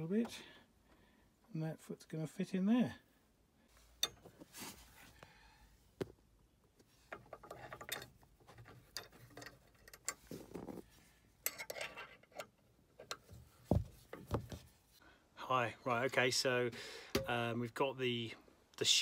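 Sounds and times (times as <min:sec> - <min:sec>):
rubbing and handling noise: 0:03.8 - 0:05.2, 0:05.9 - 0:15.0
small metal clicks and clinks: 0:11.4 - 0:12.5.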